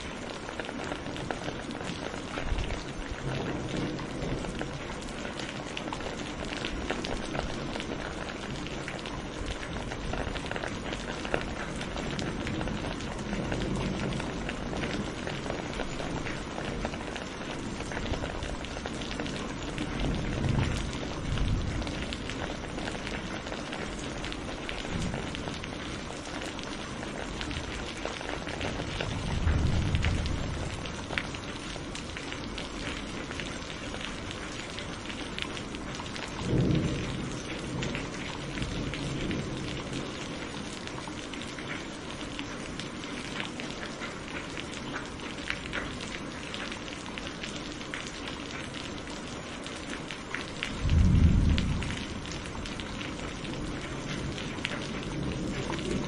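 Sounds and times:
steady rain: 0.0 - 56.0
low thunder rumbles: 5.7 - 33.5, 35.6 - 41.0, 50.6 - 56.0.

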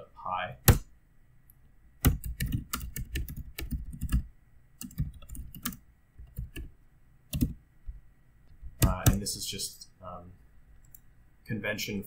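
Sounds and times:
computer keyboard typing: 2.0 - 6.7, 7.3 - 7.6, 8.8 - 9.3.

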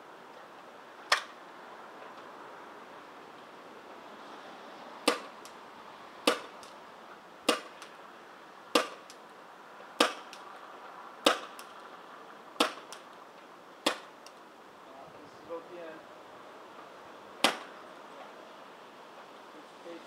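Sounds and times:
paintball pistol shots: 5.0 - 5.4, 6.2 - 6.7, 7.5 - 7.9, 8.7 - 9.2, 10.0 - 10.4, 11.2 - 11.7, 12.6 - 13.0, 13.8 - 14.2, 17.4 - 17.7.

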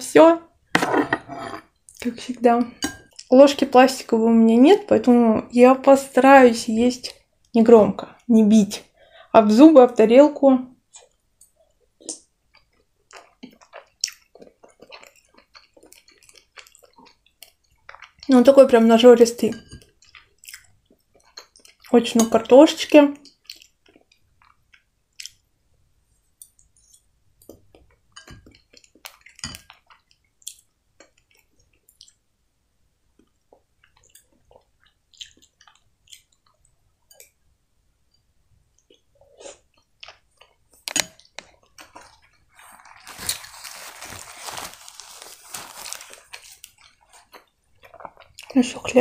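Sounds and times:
wet chewing: 12.0 - 18.4, 33.2 - 37.3
paper napkin rustling: 42.5 - 46.7.

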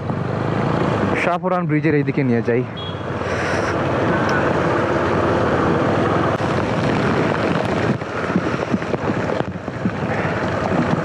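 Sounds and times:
motorcycle engine: 0.0 - 1.4, 2.7 - 11.0
tyres on wet road: 0.0 - 11.0
wind rushing on microphone: 3.2 - 11.0
heavy rain: 3.8 - 11.0.

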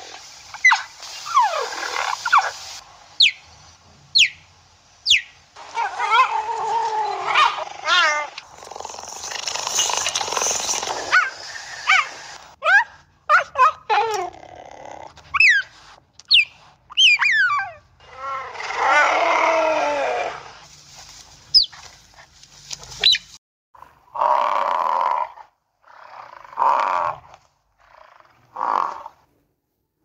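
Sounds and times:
cheetah chirping: 3.2 - 3.4, 4.1 - 4.4, 5.0 - 5.4, 16.3 - 17.8, 21.5 - 21.8, 23.0 - 23.3.

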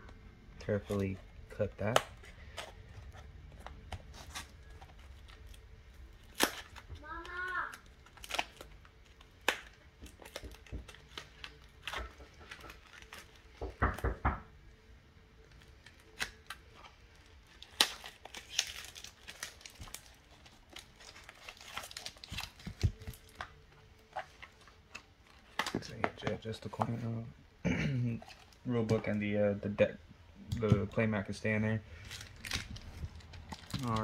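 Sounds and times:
plastic wrap tearing and crinkling: 0.6 - 13.8, 15.4 - 26.2, 31.9 - 34.0.

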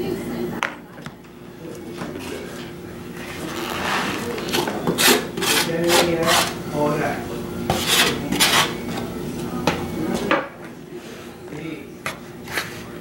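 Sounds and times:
knife scraping meat into bowl: 4.0 - 6.6, 7.7 - 8.8.

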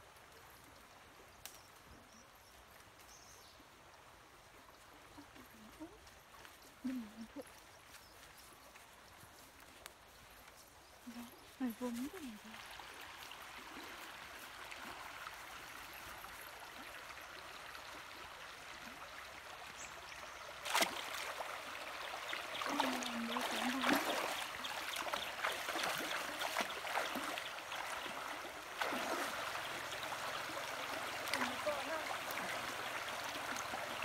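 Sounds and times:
feet splashing in water: 20.5 - 34.0.

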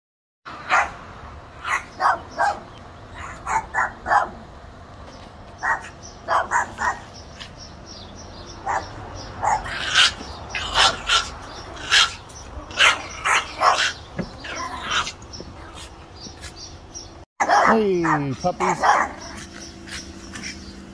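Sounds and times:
small dogs yapping: 0.6 - 1.0, 1.6 - 4.5, 5.6 - 7.8, 8.4 - 20.9.

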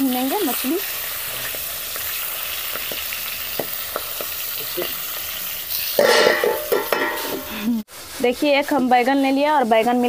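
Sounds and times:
fish frying in oil: 0.0 - 10.0
oil popping: 0.8 - 7.6.

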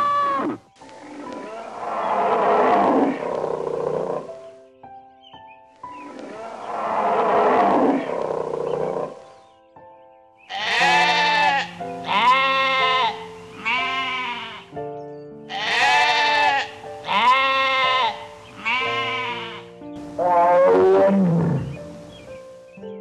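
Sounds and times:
soft piano music: 0.0 - 23.0
goat bleating: 10.5 - 14.7, 15.5 - 19.7.

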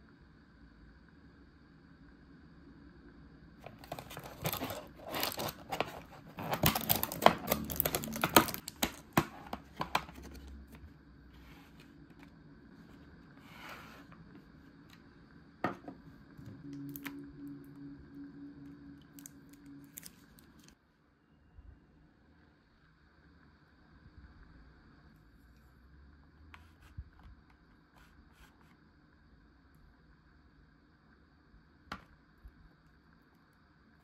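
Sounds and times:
low steady hum: 0.0 - 34.0
plastic packaging crackling and tearing: 3.6 - 10.8, 19.1 - 20.8.

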